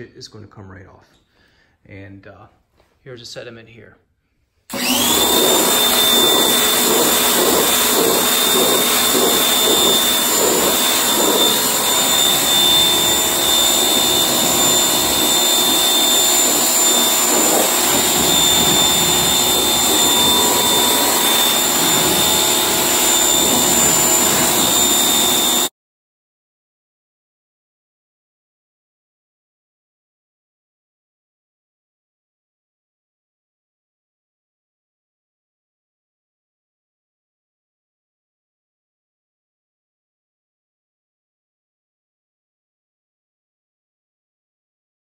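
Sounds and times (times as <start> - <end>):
pressure washer whine: 4.7 - 25.7
water spray hissing: 5.2 - 25.4.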